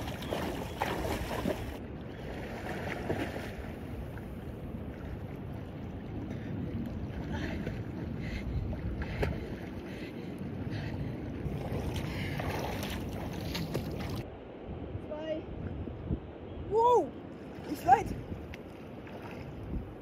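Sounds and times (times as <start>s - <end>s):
swimming splashes: 0.0s - 4.3s, 11.4s - 14.2s
person wading in water: 0.0s - 14.2s, 17.4s - 20.0s
wind rumbling on microphone: 0.0s - 20.0s.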